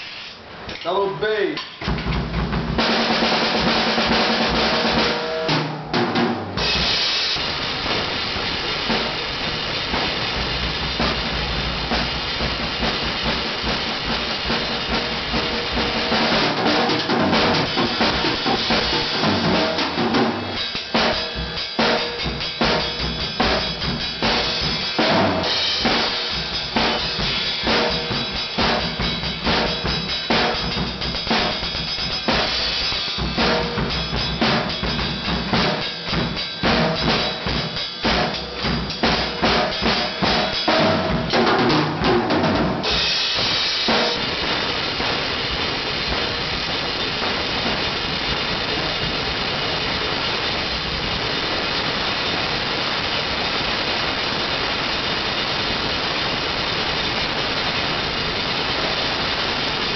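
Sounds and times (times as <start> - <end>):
cymbals: 0.0 - 59.9
snare drum: 1.5 - 49.3.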